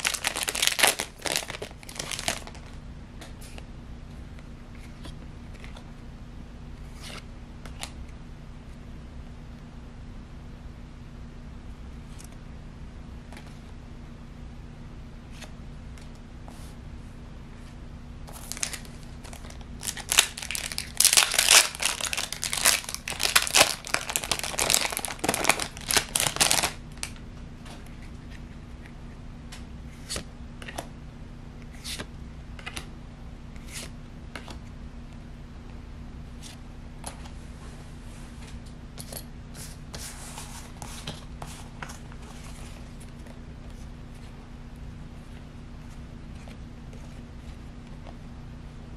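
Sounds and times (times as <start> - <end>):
packaging crinkling and tearing: 0.0 - 2.7, 18.3 - 27.2.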